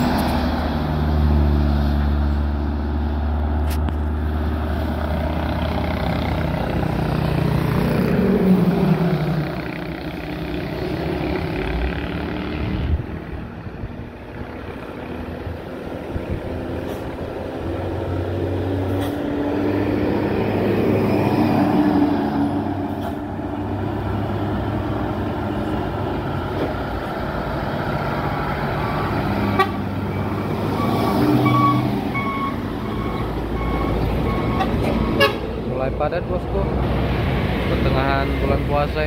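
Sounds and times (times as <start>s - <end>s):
buses and trucks passing: 0.0s - 39.0s
vehicle horn short toots: 34.6s - 35.4s.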